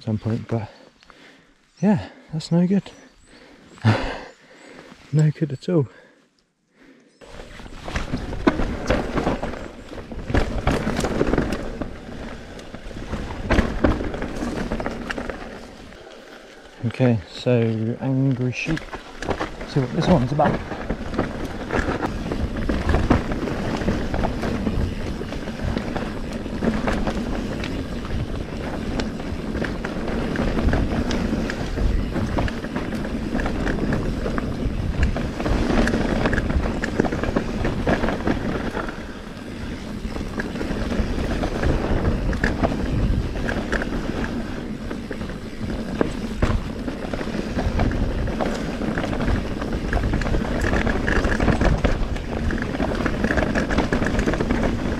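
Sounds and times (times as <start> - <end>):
bike rattling: 7.2 - 54.9
wheels knocking on roots and rocks: 7.3 - 54.9
wind rushing over microphone: 19.2 - 54.9.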